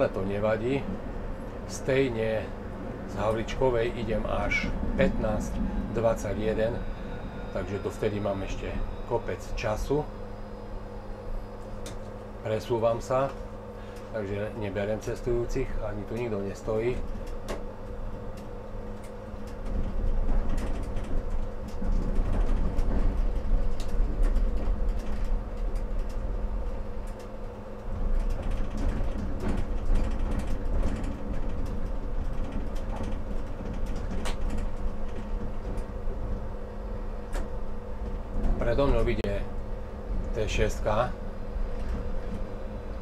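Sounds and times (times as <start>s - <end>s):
steady hum: 0.0s - 43.0s
tram wheels rumbling on rails: 0.0s - 43.0s
wheels clicking over rail joints: 16.1s - 36.4s.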